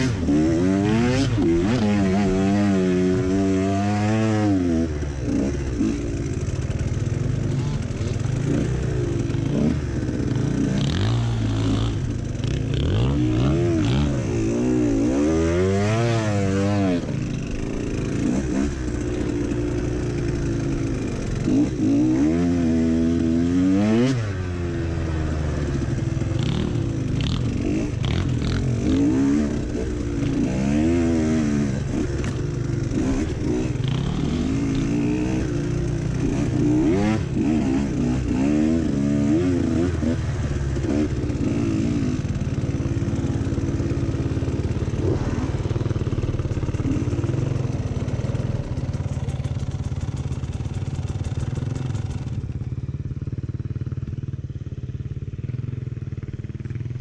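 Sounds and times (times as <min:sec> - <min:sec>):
dirt bike engine revving: 0:00.0 - 0:52.6.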